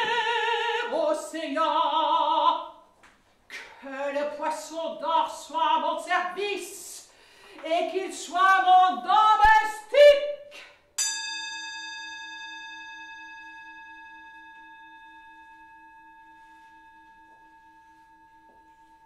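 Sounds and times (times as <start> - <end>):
woman singing: 0.0 - 2.8, 3.6 - 10.7
bell-like metal tone ringing: 11.0 - 19.0.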